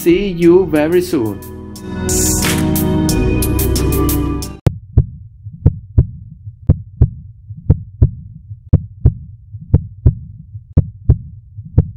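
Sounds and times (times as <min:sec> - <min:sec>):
heartbeat thumps: 0:04.6 - 0:11.9.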